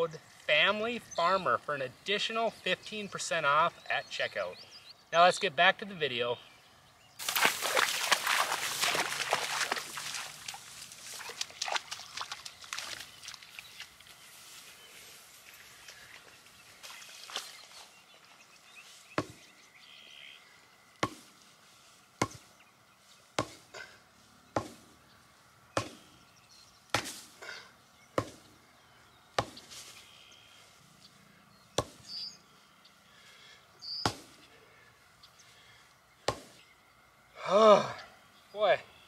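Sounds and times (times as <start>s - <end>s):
sledgehammer striking wooden post: 21.0s - 21.3s, 22.2s - 22.4s, 23.4s - 23.6s, 24.6s - 24.8s, 25.8s - 26.0s, 26.9s - 27.3s, 28.2s - 28.4s, 34.0s - 34.3s.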